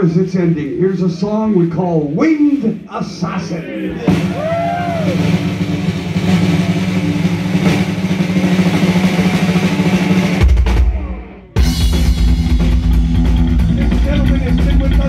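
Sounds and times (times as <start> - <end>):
fast drum roll: 4.0 - 15.0
heavy metal band playing live: 4.0 - 15.0.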